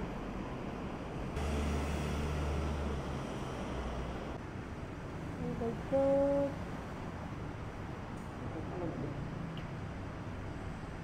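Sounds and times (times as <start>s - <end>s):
low rumble and hiss: 0.0s - 11.0s.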